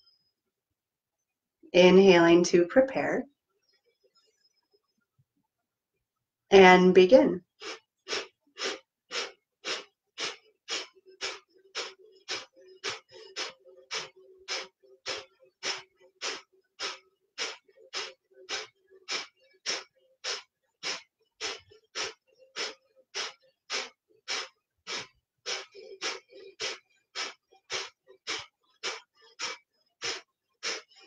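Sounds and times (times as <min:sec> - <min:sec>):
forceful nasal exhales: 0:07.5 - 0:31.0.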